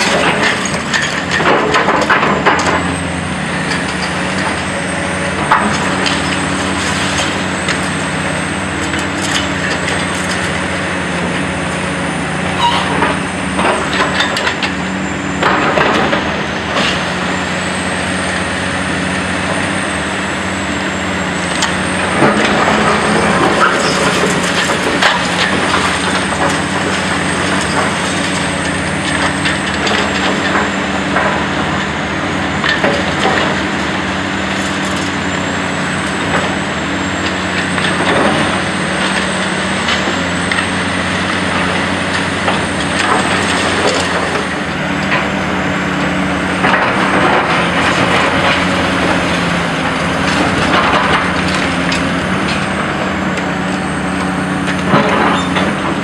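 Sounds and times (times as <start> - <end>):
excavator diesel engine running: 0.0 - 56.0
high hydraulic whine: 0.0 - 56.0.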